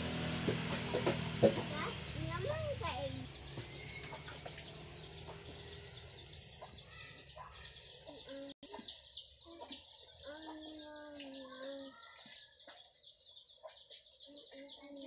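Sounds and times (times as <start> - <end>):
small birds chirping: 1.7 - 15.0
chickens clucking: 3.3 - 15.0
drawn-out chicken call: 3.6 - 7.6.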